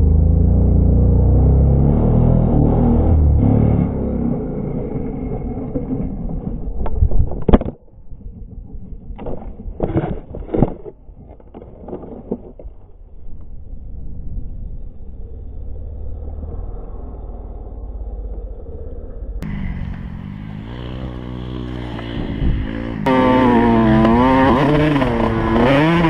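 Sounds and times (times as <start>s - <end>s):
low steady rumble: 0.0s - 10.3s, 12.4s - 26.0s
dirt bike engine running: 13.5s - 26.0s.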